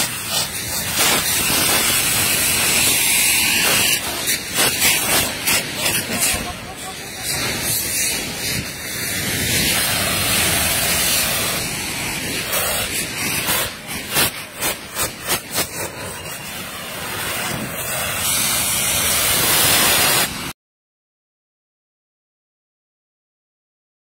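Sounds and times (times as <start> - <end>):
rapid sharp pops: 0.0 - 6.7, 12.4 - 16.3
fireworks spewing sparks with hiss: 0.0 - 20.6.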